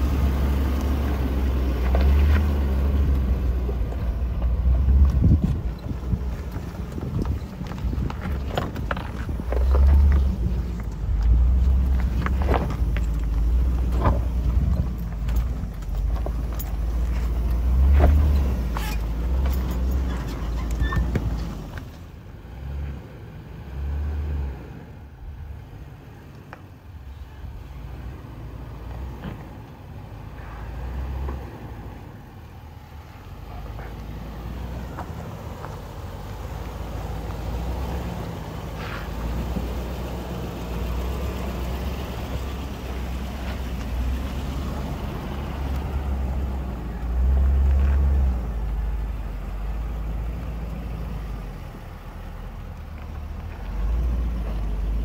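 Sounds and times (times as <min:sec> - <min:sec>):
engine and drivetrain rumble: 0:00.0 - 0:55.0.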